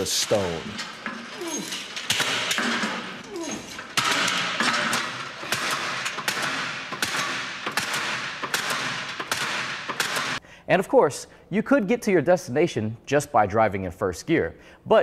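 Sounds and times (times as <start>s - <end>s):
sharp knocks and clanks: 0.0s - 10.4s.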